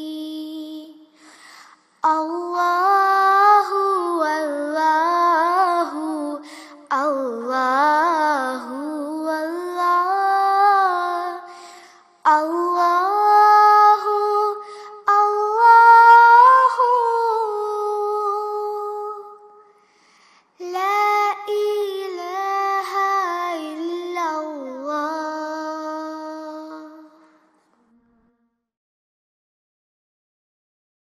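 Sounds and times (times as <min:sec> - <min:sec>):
high voice singing unaccompanied: 0:00.0 - 0:01.1, 0:02.0 - 0:11.5, 0:12.2 - 0:19.6, 0:20.6 - 0:28.2.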